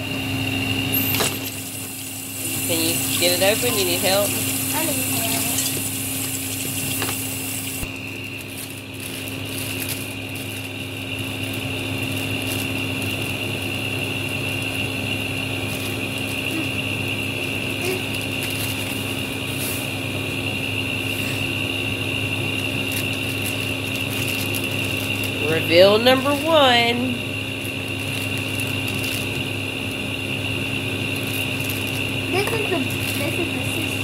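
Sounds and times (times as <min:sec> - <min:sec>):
machine hum with high whine: 0:00.0 - 0:34.0
plastic packaging rustling: 0:02.7 - 0:10.8, 0:17.8 - 0:19.2, 0:22.7 - 0:25.4, 0:27.7 - 0:29.4.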